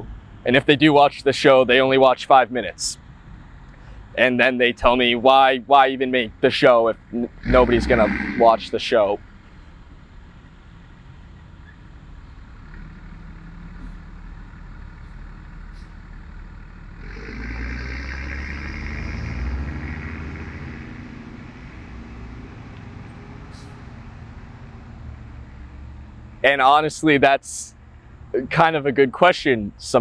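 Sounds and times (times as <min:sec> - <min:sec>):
road traffic: 0:00.0 - 0:30.0
dump truck driving past: 0:07.0 - 0:26.8.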